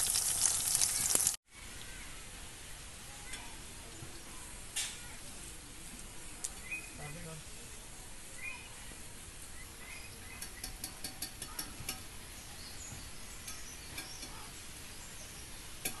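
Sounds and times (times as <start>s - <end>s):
outdoor background hiss: 0.0s - 16.0s
faint bird chirps: 6.5s - 7.3s, 8.3s - 10.8s.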